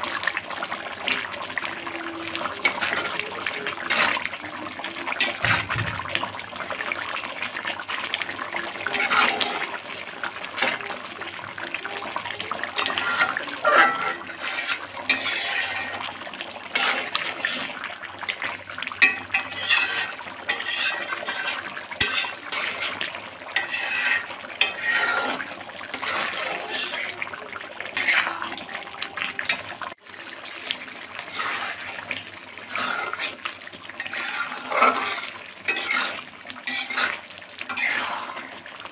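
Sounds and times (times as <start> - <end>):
curry bubbling: 0.0 - 38.9
spatula stirring and scraping pot: 0.0 - 38.9.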